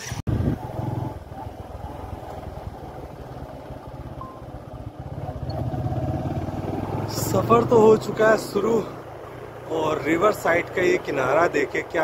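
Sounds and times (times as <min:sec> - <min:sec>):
vehicle engine running: 0:00.3 - 0:12.0.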